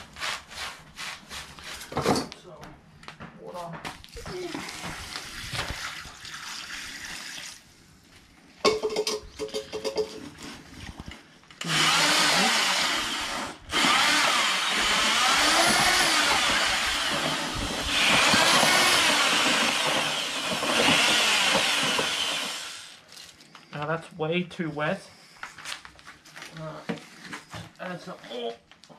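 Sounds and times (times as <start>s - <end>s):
electric paddle mixer churning concrete: 11.6s - 23.0s.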